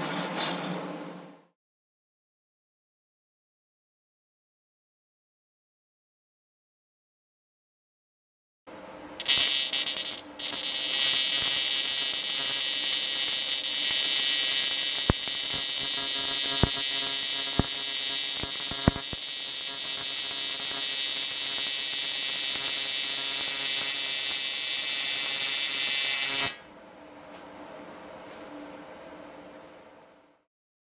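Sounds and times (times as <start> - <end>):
welding arc buzzing hiss: 9.2 - 26.6.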